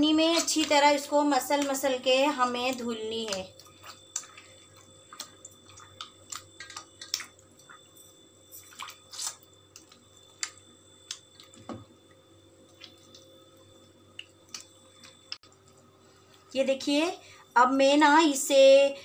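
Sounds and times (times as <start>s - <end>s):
hands kneading dough in water: 0.0s - 15.8s
wet splashes and drips: 8.5s - 11.5s.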